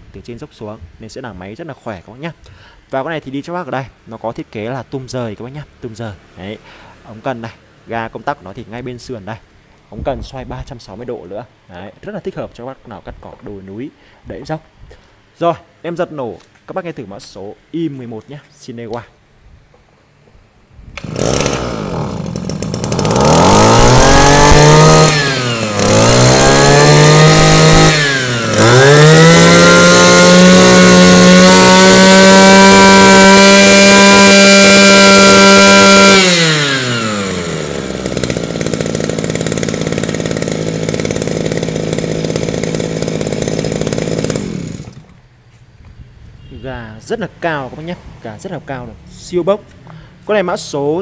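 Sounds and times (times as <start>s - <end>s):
brush cutter engine revving: 20.9s - 45.2s.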